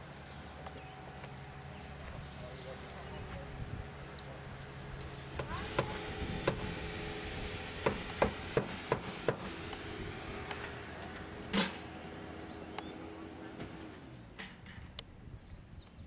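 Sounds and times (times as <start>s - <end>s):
hammering on a roof: 5.4s - 6.8s, 7.8s - 9.8s.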